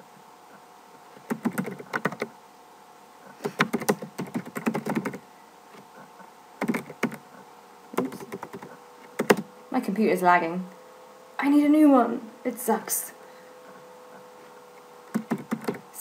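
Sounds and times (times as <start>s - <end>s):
computer keyboard typing: 1.2s - 2.3s, 3.4s - 5.2s, 6.6s - 7.2s, 8.0s - 9.5s, 15.0s - 15.8s.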